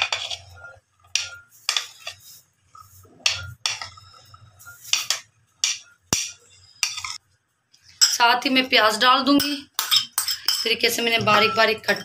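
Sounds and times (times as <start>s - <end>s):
metal spoon scraping ceramic plate: 0.0s - 7.2s.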